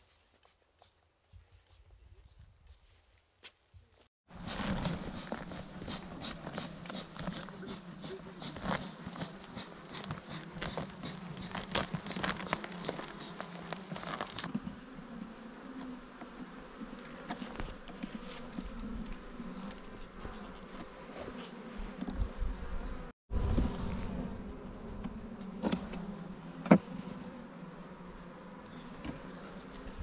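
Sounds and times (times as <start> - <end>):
honeybees buzzing: 4.3 - 30.0
hive tool clicking and scraping: 4.4 - 14.8, 15.8 - 22.3, 25.0 - 26.8.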